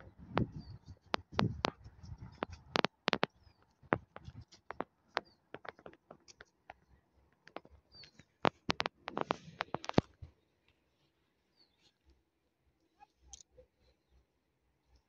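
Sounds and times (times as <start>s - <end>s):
twigs cracking underfoot: 1.2s - 10.8s.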